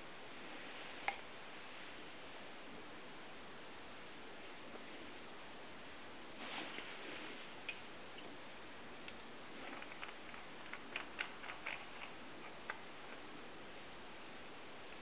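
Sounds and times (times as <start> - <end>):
soft plastic rustle: 6.4 - 7.6.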